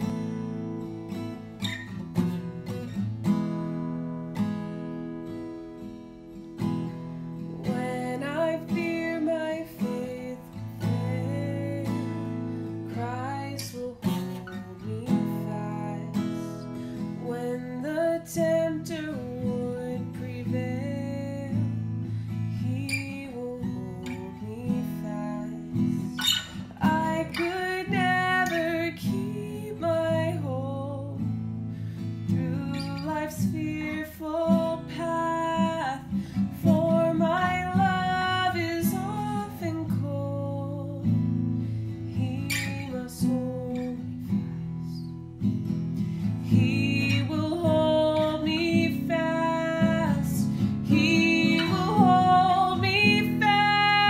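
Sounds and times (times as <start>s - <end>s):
strummed acoustic guitar: 0.0s - 54.0s
woman singing a hymn: 7.6s - 12.2s, 12.9s - 16.6s, 17.2s - 21.8s, 22.5s - 26.2s, 26.8s - 31.2s, 32.3s - 41.2s, 42.2s - 44.3s, 46.4s - 54.0s.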